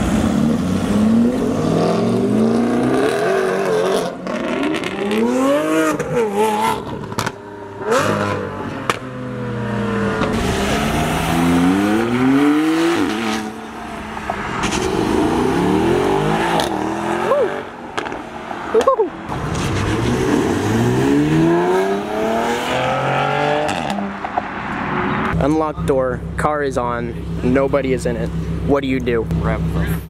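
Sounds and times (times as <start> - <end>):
sports car engines revving: 0.0 - 30.0
sharp cracks: 17.9 - 20.1.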